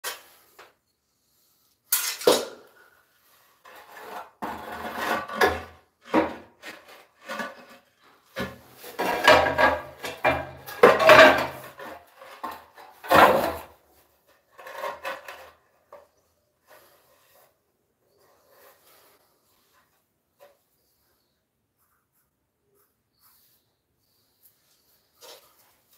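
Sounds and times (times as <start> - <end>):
ceramic tile scraping on floor: 3.6 - 13.8, 14.5 - 17.5.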